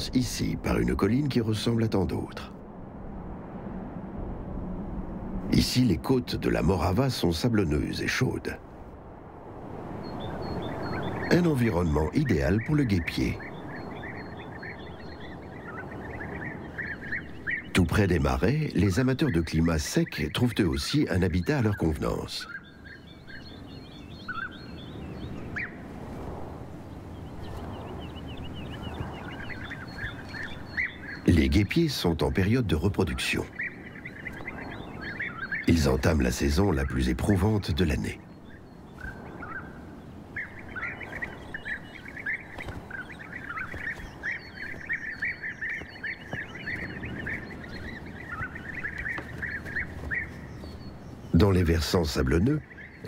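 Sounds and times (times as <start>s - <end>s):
low outdoor rumble: 0.0s - 20.3s
faint high twittering: 0.0s - 53.0s
bird chirps: 9.9s - 26.0s, 26.7s - 53.0s.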